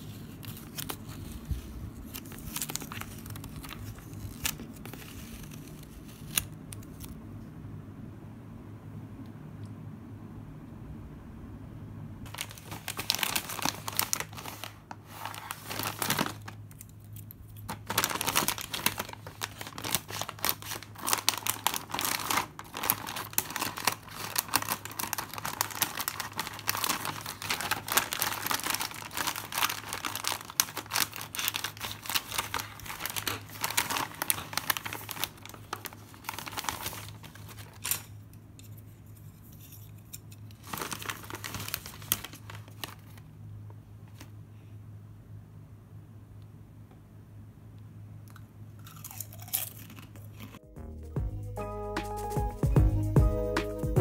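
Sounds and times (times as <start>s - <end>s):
plastic chip bag crinkling: 0.0s - 7.2s, 12.3s - 38.3s, 40.4s - 43.3s, 48.8s - 50.6s.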